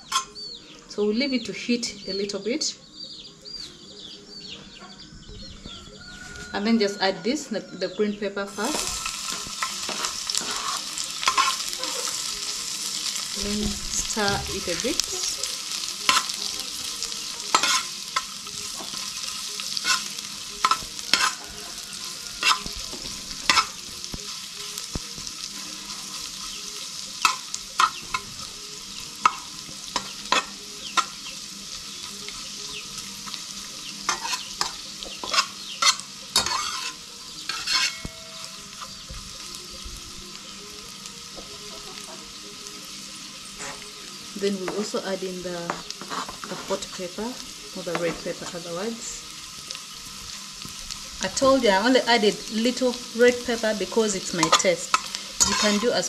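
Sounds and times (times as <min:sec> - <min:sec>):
peppers sizzling in frying pan: 0:00.0 - 0:02.7, 0:08.4 - 0:56.0
metal spatula scraping pan: 0:08.5 - 0:12.3, 0:13.0 - 0:23.9, 0:34.1 - 0:39.0, 0:46.0 - 0:47.0, 0:54.2 - 0:56.0.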